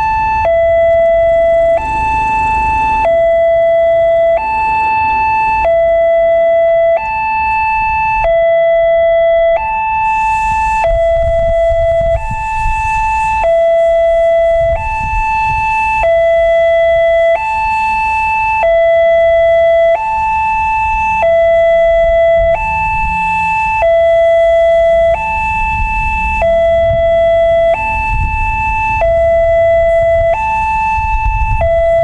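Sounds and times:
two-tone level crossing siren: 0.0s - 32.0s.

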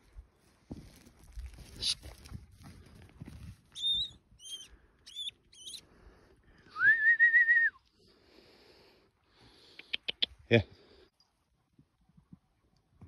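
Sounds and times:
person whistling a long note: 6.7s - 7.8s.

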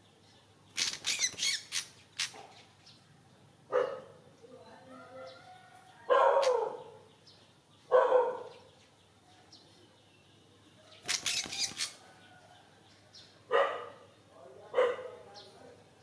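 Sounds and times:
bird wings fluttering: 11.0s - 12.0s.

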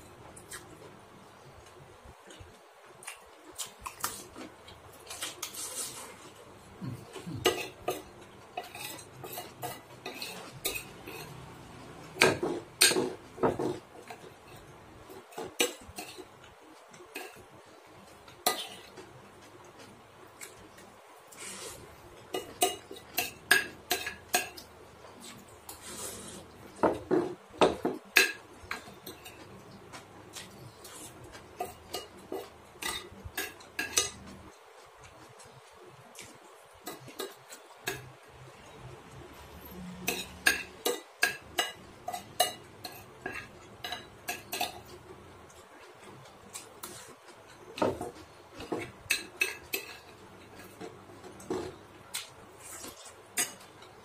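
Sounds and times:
cutlery clinking on ceramic plate: 22.3s - 24.7s, 31.6s - 34.3s.

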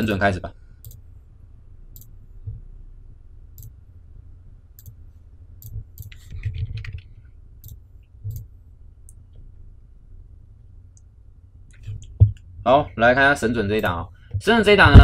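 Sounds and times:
low steady hum: 0.0s - 15.0s
computer mouse clicks: 4.8s - 5.0s, 5.6s - 8.5s.

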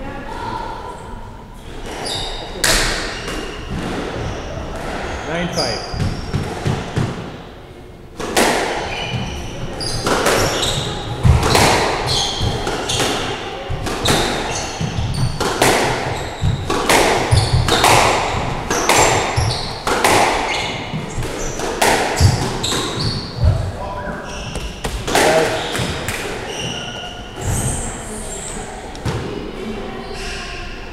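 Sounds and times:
shoes squeaking: 1.8s - 7.0s, 8.8s - 28.7s
squash ball smacking: 2.6s - 5.1s, 6.0s - 7.5s, 8.2s - 23.7s, 24.5s - 26.7s.

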